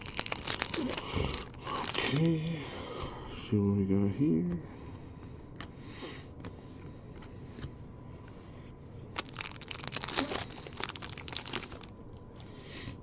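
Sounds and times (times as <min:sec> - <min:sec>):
foil wrapper tearing and crinkling: 0:00.0 - 0:02.4, 0:09.2 - 0:12.0.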